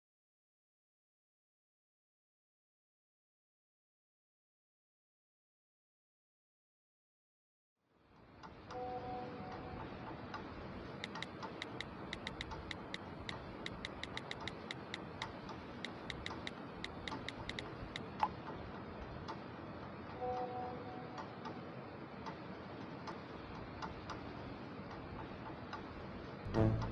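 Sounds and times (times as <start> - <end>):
brief steady tone: 8.7 - 9.7, 26.5 - 26.9
ticking clicks: 9.8 - 18.4.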